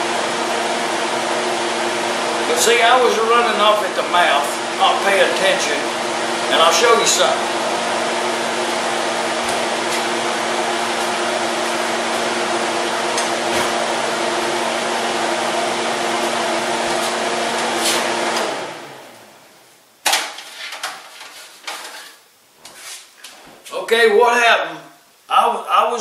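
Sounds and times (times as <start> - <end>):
kitchen fan motor humming: 0.0 - 22.8
dishes and pans clattering: 20.1 - 22.2.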